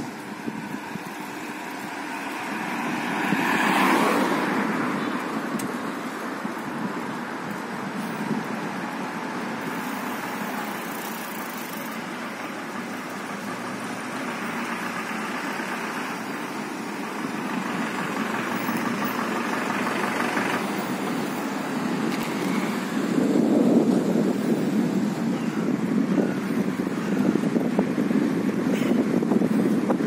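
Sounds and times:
road noise rushing: 0.0s - 30.0s
vehicle engine running: 8.8s - 24.3s.

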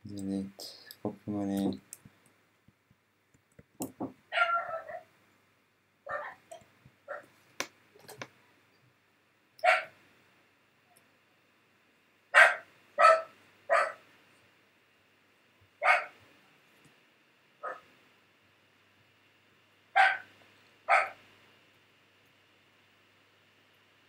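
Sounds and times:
dog barking: 4.3s - 5.1s, 6.1s - 6.4s, 7.1s - 7.3s, 9.6s - 9.9s, 12.4s - 14.0s, 15.8s - 16.2s, 17.6s - 17.8s, 20.0s - 20.3s, 20.9s - 21.2s.

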